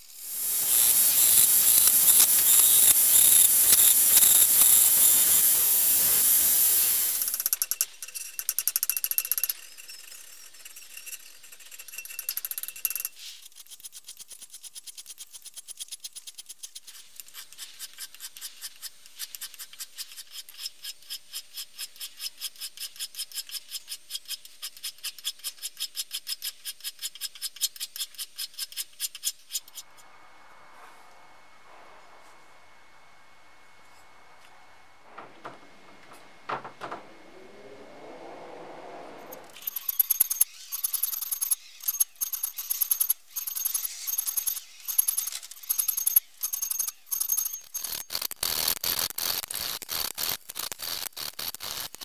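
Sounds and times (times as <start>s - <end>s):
hand file scraping steel: 13.2s - 29.9s.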